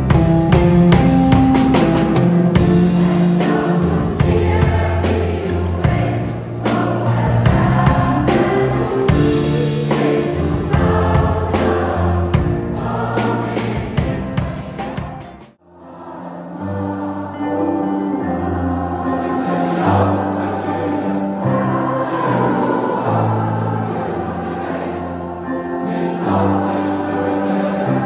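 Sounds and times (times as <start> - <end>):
drum kit beat: 0.0 - 15.6
choir singing with band: 0.0 - 28.0.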